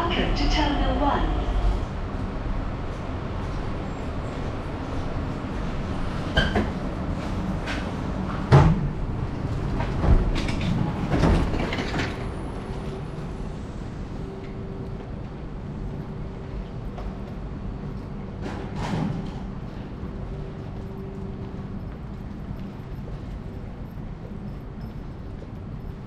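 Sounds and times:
train rumbling to a stop: 0:00.0 - 0:26.0
sliding doors clunking open: 0:09.6 - 0:12.4.

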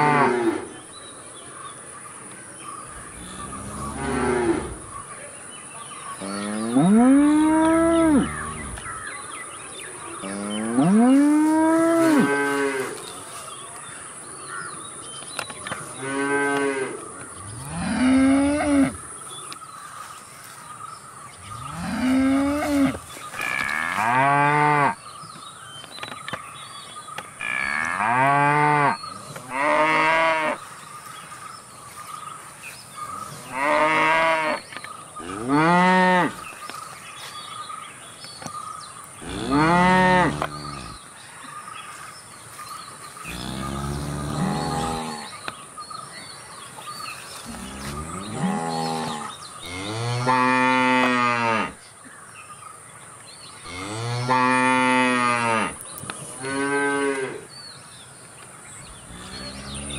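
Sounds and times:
cows mooing: 0:03.2 - 0:04.8, 0:06.2 - 0:08.8, 0:21.5 - 0:25.0, 0:27.4 - 0:30.6, 0:33.5 - 0:34.6, 0:39.2 - 0:41.0, 0:43.3 - 0:45.3, 0:47.5 - 0:51.8, 0:59.1 - 0:59.9.

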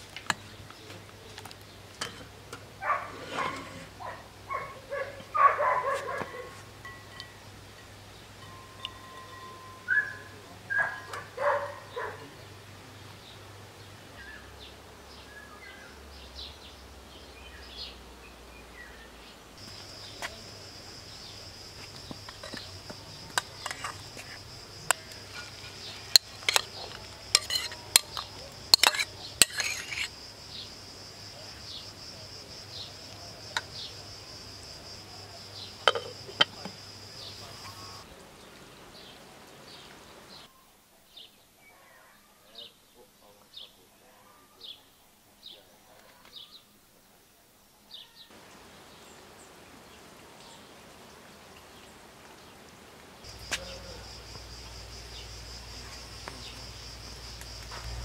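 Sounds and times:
glass lid clanking on pot: 0:06.8 - 0:07.5, 0:08.4 - 0:09.9, 0:26.1 - 0:30.1, 0:35.8 - 0:36.6
metal clinks: 0:06.8 - 0:09.9.

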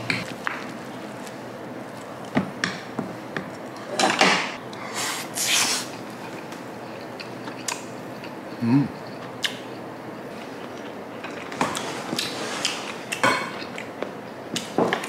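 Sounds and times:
person blowing on food: 0:04.9 - 0:05.9.

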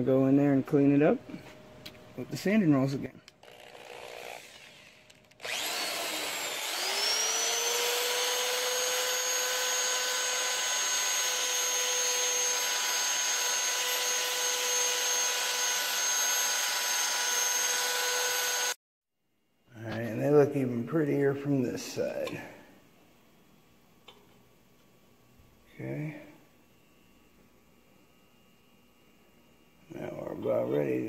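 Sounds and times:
rotary tool motor whine: 0:03.4 - 0:18.8.

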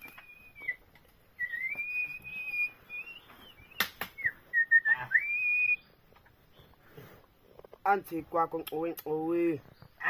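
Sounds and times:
person whistling a slow tune: 0:01.4 - 0:05.8
sharp cracks: 0:03.7 - 0:04.3.

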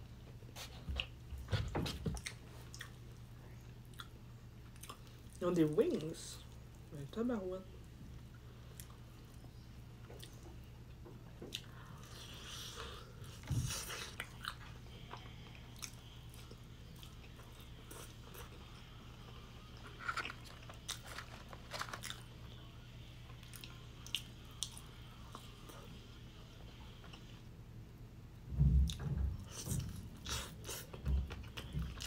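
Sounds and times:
faint low hum: 0:00.0 - 0:32.0
crunchy fried chicken chewing: 0:11.5 - 0:22.6.

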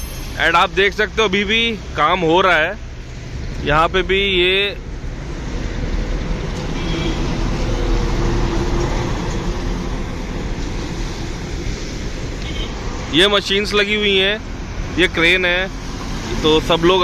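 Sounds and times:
road traffic noise: 0:00.0 - 0:17.0
bus passing close by: 0:04.2 - 0:13.2, 0:14.0 - 0:17.0.

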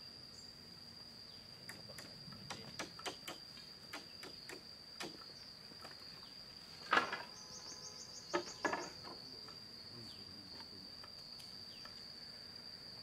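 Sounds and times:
high-pitched insect drone: 0:00.0 - 0:13.0
bamboo poles knocking: 0:08.3 - 0:09.2.

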